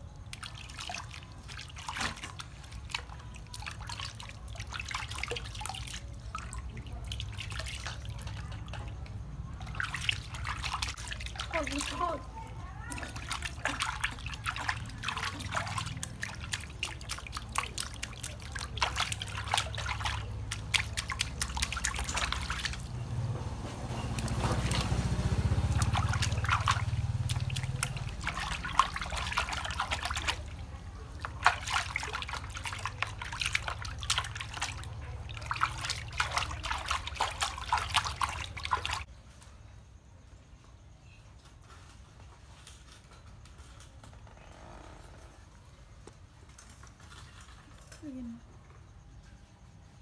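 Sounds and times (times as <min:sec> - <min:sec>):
water trickling and dripping: 0:00.0 - 0:39.1
hand splashing water in basin: 0:00.2 - 0:12.3, 0:12.9 - 0:23.0, 0:23.8 - 0:39.1.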